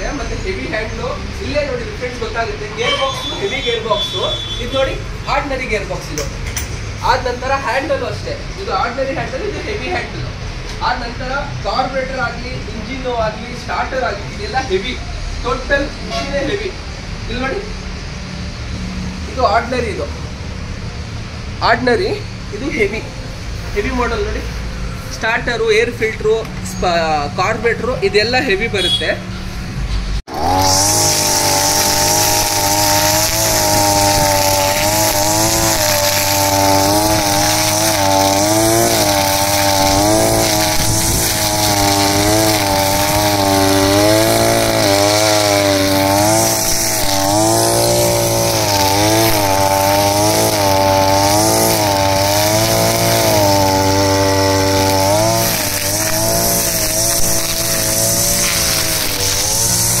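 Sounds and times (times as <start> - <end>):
brushcutter engine revving: 30.3 - 60.0.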